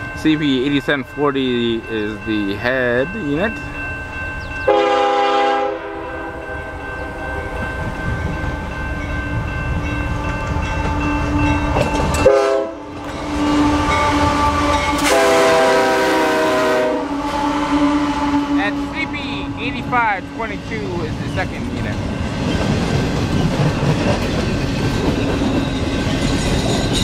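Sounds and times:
train air horn: 4.7 - 6.5, 12.2 - 19.6
train wheels rolling: 6.7 - 27.0
locomotive engine rumble: 12.9 - 27.0.

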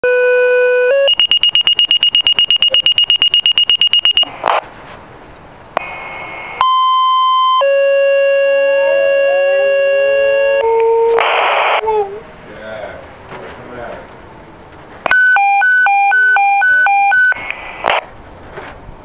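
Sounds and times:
pager tones through speaker: 0.0 - 4.4, 6.6 - 11.2, 15.1 - 17.6
rapid high alert beeps: 1.0 - 4.3, 15.2 - 17.4
radio hiss: 4.1 - 4.7, 5.8 - 6.7, 11.2 - 11.9, 17.4 - 18.1.

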